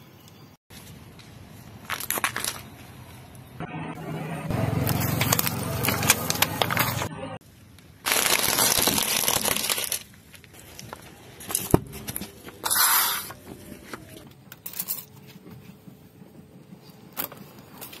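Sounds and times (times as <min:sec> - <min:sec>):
tyre crushing plastic crackling: 0:01.7 - 0:02.8, 0:04.7 - 0:07.1, 0:07.8 - 0:12.8.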